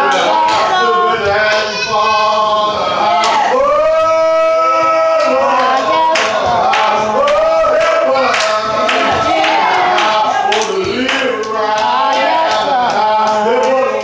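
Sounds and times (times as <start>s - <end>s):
man chanting a prayer: 10.5s - 14.0s.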